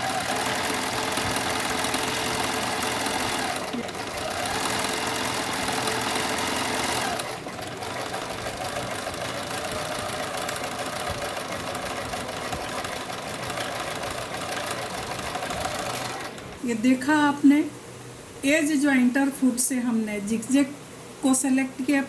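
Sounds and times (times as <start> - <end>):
sewing machine running: 0.0 - 16.7.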